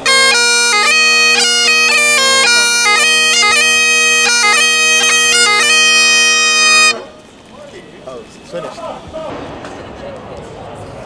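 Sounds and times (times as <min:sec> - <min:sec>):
bagpipe chanter melody: 0:00.0 - 0:07.2
bagpipe drone: 0:00.0 - 0:07.3.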